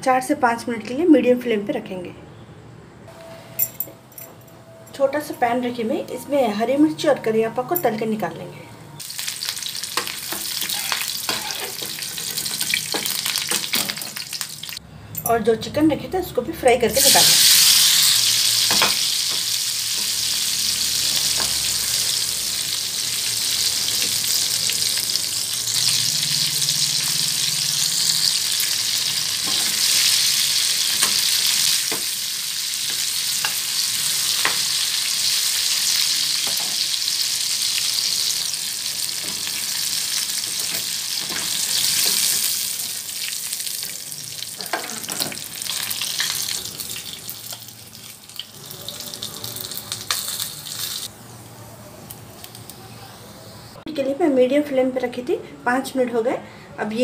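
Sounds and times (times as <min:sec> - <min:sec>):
chicken sizzling in hot oil: 0:09.0 - 0:14.8, 0:17.0 - 0:51.1.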